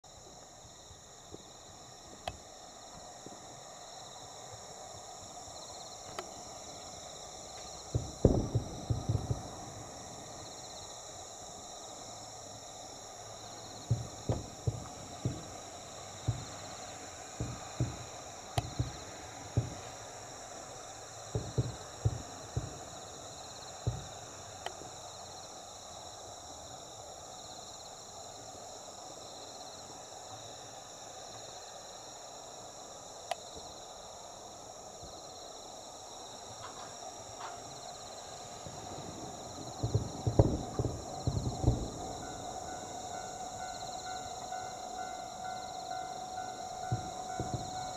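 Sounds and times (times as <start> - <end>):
insects chirring: 0.0 - 47.9
distant firework booms: 7.8 - 10.1, 13.8 - 20.0, 21.3 - 23.0, 38.5 - 44.4, 46.8 - 47.9.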